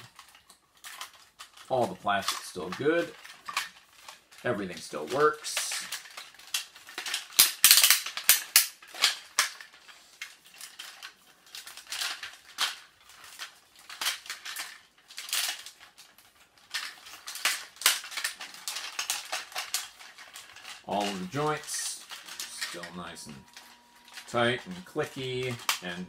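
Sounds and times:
plastic joints clicking: 16.6 - 26.0.

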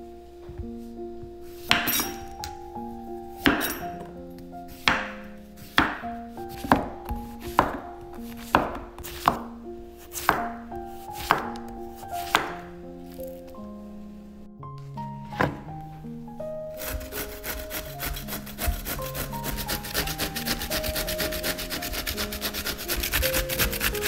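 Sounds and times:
knife chopping on cutting board: 3.4 - 3.8, 4.8 - 9.4, 10.1 - 10.5, 11.2 - 11.6, 12.2 - 12.6, 16.8 - 24.0.

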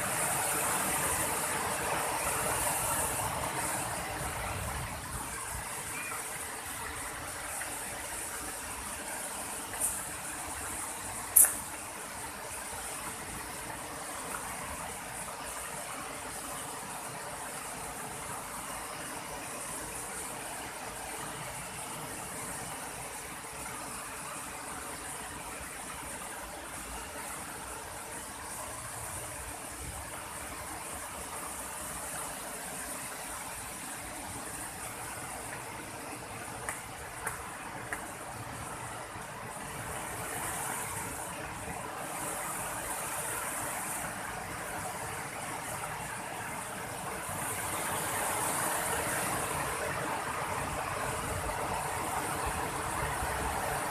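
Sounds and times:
rushing water: 0.0 - 53.9.

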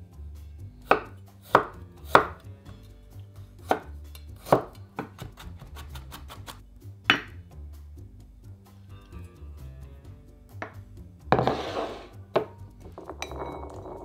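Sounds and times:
knife chopping on wooden board: 0.8 - 2.8, 3.6 - 7.4.

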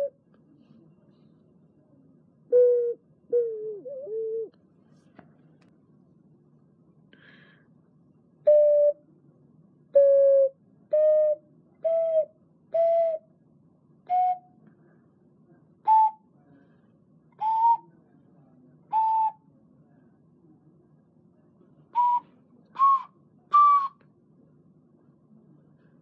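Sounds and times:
ocarina held notes: 22.0 - 24.0.

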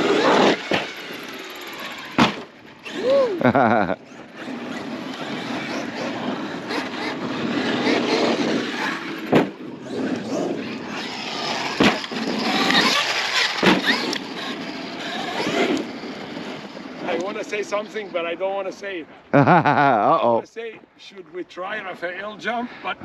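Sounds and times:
electric motor whining: 0.0 - 17.3
tyres on dirt: 0.0 - 18.3.

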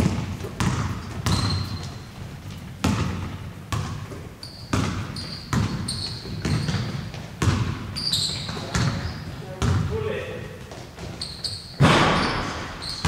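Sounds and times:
short high squeaks: 1.3 - 2.1, 4.4 - 6.9, 8.0 - 9.3, 11.1 - 13.0.

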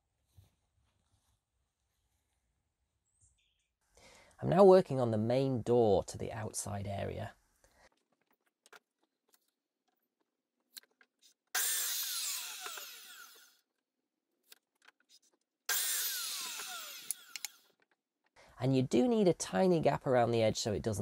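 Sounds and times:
clicks and knocks of wood: 7.7 - 11.5
electric mitre saw cutting timber: 11.5 - 13.7, 15.7 - 17.8.

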